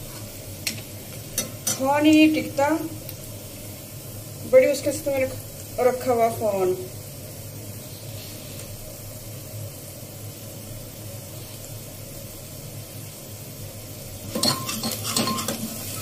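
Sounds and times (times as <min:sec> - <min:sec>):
spices sizzling in a pot: 0:00.0 - 0:16.0
spatula scraping a pot: 0:14.4 - 0:16.0.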